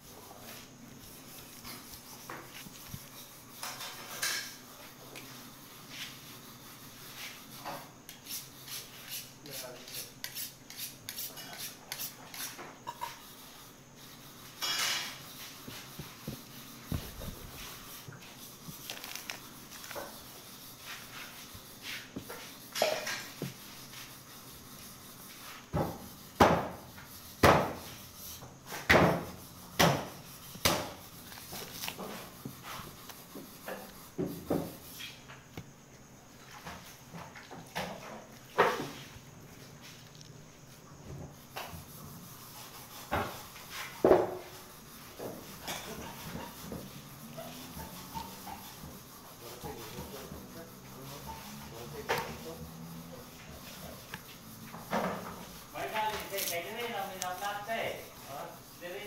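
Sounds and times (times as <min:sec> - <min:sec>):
knife clinking and scraping on meat: 0:08.2 - 0:13.4, 0:22.6 - 0:23.4.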